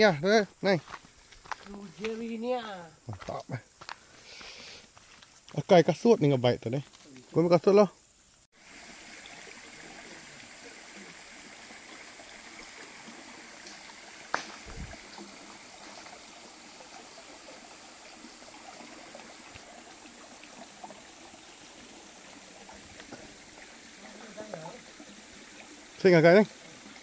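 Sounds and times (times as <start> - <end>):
stream water flowing: 8.5 - 27.0.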